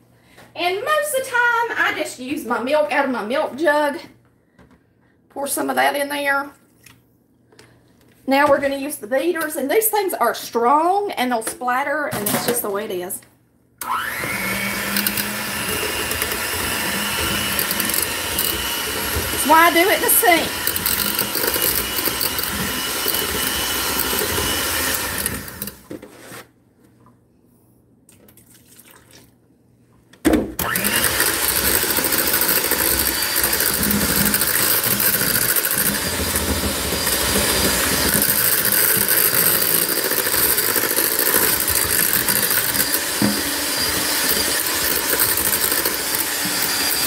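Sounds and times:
electric hand mixer running: 13.8 - 25.8, 30.6 - 47.0.

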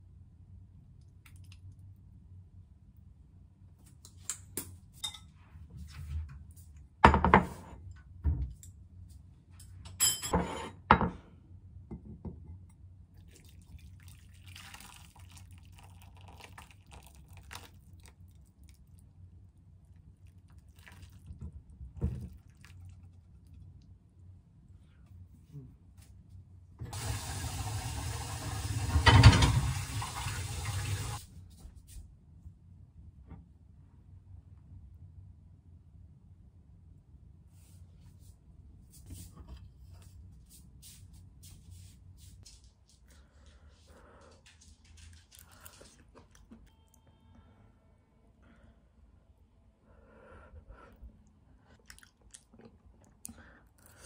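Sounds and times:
low steady hum: 0.0 - 54.0
dishes and pot clattering: 9.9 - 11.2
soup pouring into a bowl: 13.2 - 18.8.

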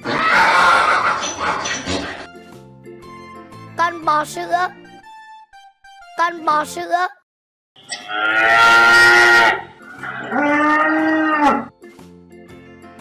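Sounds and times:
cow mooing: 7.9 - 11.7.

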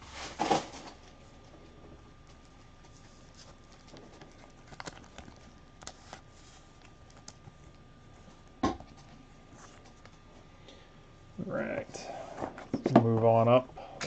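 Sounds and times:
trading cards and packaging clicking: 2.2 - 7.8.

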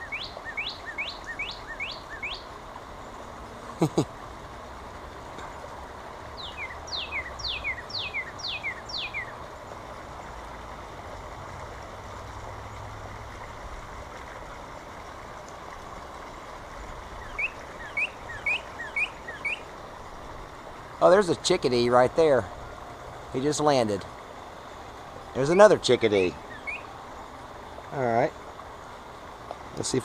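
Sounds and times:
bird singing whistles: 0.0 - 2.4, 6.4 - 9.3, 17.2 - 19.6, 26.5 - 26.9
low background noise: 0.0 - 30.0.

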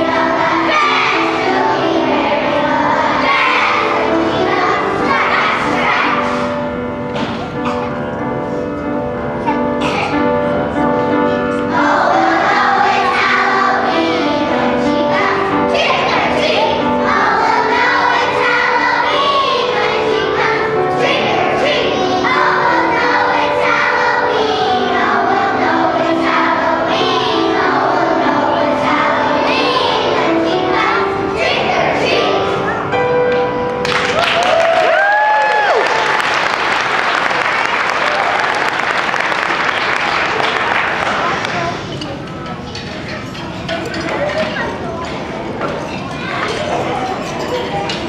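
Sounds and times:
children's choir singing: 0.0 - 34.3, 35.2 - 48.0
instrumental accompaniment: 0.0 - 34.3.

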